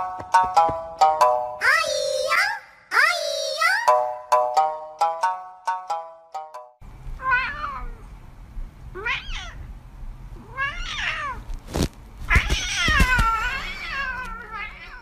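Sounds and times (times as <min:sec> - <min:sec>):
cat meowing: 0:07.2 - 0:08.0, 0:09.0 - 0:09.7, 0:10.4 - 0:11.5, 0:12.2 - 0:15.0.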